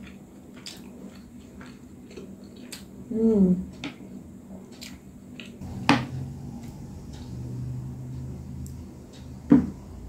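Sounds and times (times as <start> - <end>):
faint low hum: 5.6 - 10.0.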